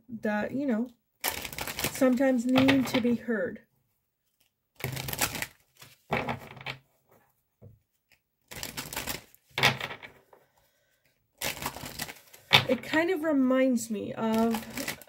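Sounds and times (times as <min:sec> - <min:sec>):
cards being shuffled: 0:04.2 - 0:06.8, 0:07.9 - 0:10.4, 0:11.4 - 0:13.0, 0:14.2 - 0:15.0.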